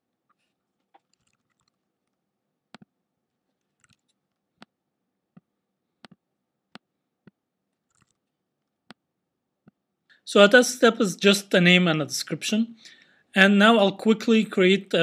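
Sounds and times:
keyboard typing: 0.9 - 2.2, 3.6 - 4.2, 7.8 - 8.3.

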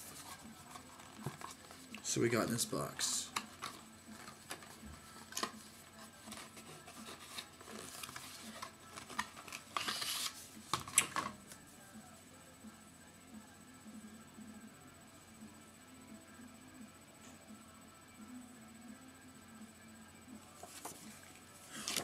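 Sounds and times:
paper packaging rustling: 3.3 - 11.3, 20.6 - 22.0.

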